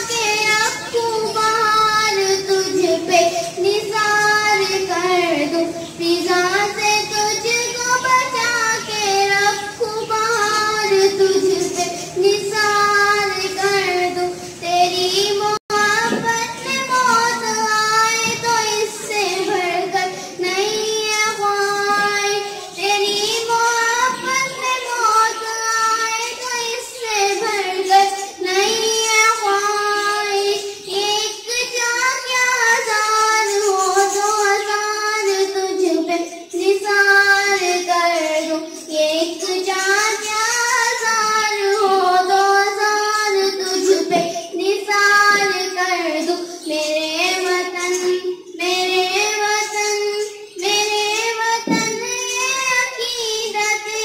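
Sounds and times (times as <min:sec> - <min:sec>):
girl singing into microphone: 0:00.0 - 0:54.0.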